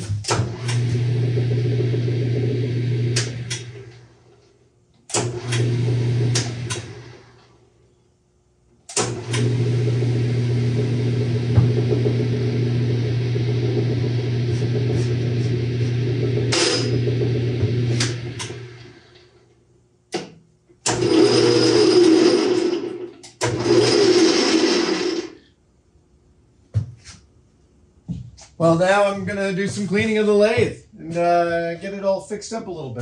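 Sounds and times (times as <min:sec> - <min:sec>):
lathe motor running: 0:00.4 - 0:04.0, 0:05.2 - 0:07.2, 0:09.1 - 0:19.2, 0:20.9 - 0:25.4.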